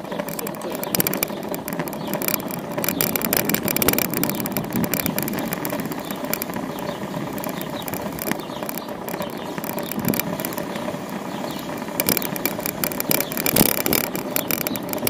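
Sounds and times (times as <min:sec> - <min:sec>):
bicycle clicks and rattles: 0:00.0 - 0:15.0
city street traffic rumble: 0:00.0 - 0:15.0.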